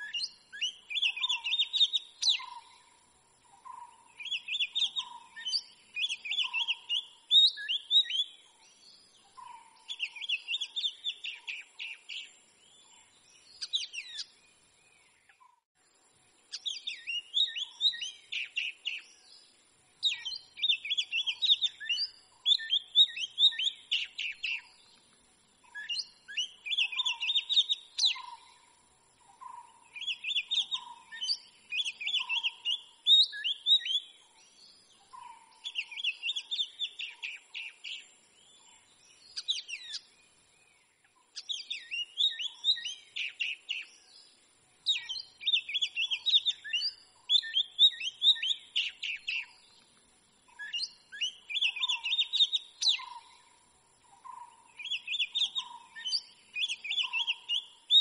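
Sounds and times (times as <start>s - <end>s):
bird singing whistles and chirps: 0.0s - 15.6s, 16.5s - 49.9s, 50.5s - 58.0s.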